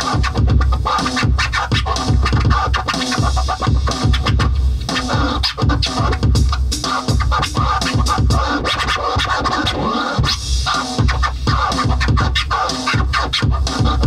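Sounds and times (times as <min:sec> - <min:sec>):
record scratch sounds: 0:00.0 - 0:14.0.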